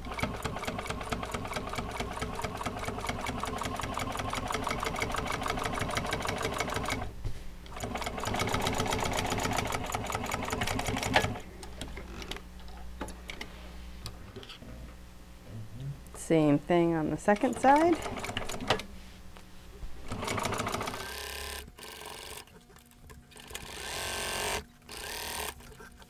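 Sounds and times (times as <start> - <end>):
sewing machine stitching: 0.0 - 7.1, 7.7 - 11.4, 17.4 - 18.8, 20.1 - 22.4, 23.4 - 25.6.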